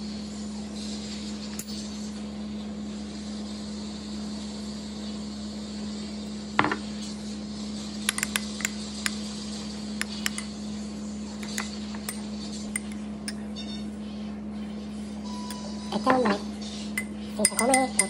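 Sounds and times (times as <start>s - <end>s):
steady low hum: 0.0s - 18.0s
metal spoon clinking ceramic bowl: 8.1s - 9.2s, 10.0s - 10.6s, 11.4s - 13.5s, 16.9s - 18.0s.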